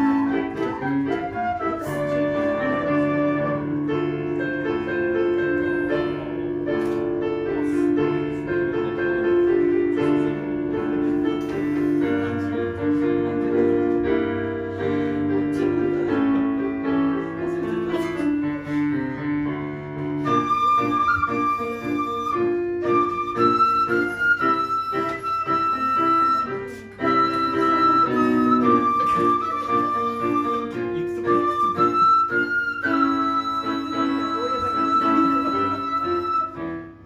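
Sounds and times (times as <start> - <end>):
end-blown flute: 0.0 - 4.1, 20.2 - 37.0
piano melody: 0.0 - 37.0.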